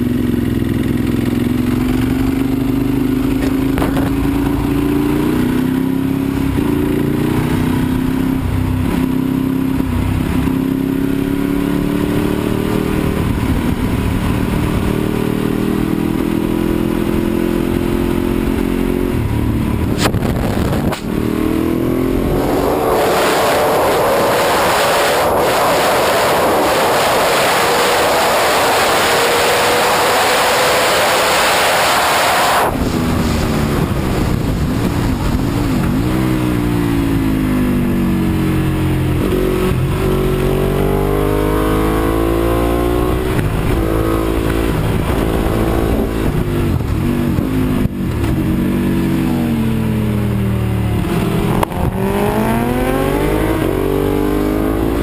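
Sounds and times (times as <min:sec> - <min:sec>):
motorcycle engine revving: 0:00.0 - 0:55.0
wind roar: 0:01.7 - 0:55.0.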